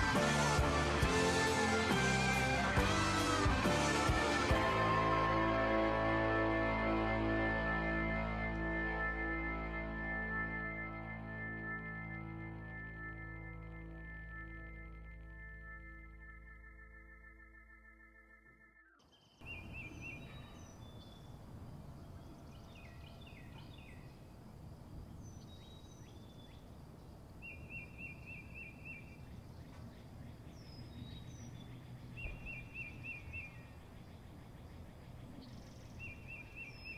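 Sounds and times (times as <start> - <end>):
higher bird chirps: 9.2 - 24.3, 27.4 - 36.9
small birds singing: 18.8 - 36.9.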